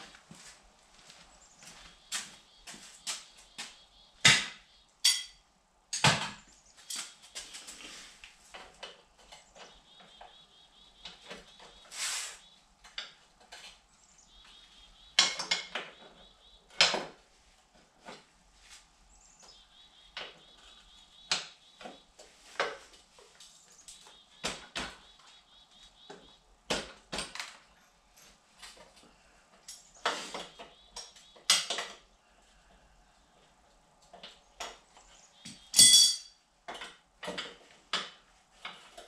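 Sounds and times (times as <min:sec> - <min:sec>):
ringing metal clang: 0:04.3 - 0:05.4, 0:35.7 - 0:36.4
metal hand tools clinking: 0:35.7 - 0:36.4.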